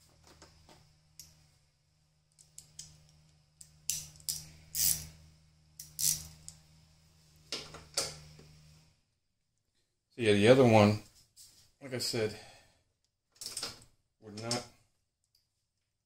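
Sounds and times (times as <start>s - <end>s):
metal tools clicking and scraping: 3.6s - 5.1s.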